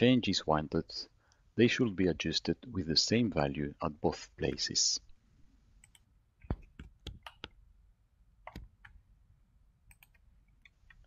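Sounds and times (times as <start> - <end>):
computer mouse clicks: 5.8 - 7.6, 8.4 - 9.0, 9.9 - 11.0.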